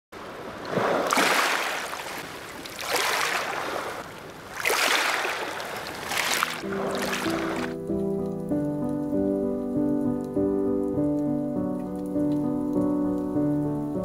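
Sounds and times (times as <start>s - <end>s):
water rushing in surges: 0.2s - 7.8s.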